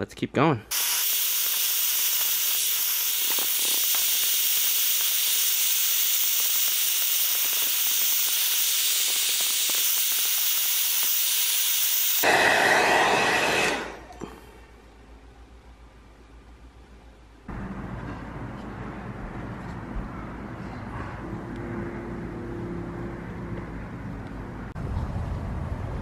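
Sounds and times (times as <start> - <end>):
heat gun blowing hot air: 0.7 - 14.4.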